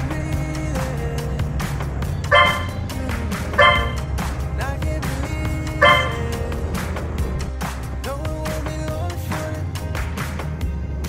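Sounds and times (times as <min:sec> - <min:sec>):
low steady rumble: 0:00.0 - 0:09.2
music with singing voice: 0:00.0 - 0:11.0
loud stacked tone: 0:02.2 - 0:04.2, 0:05.8 - 0:06.4.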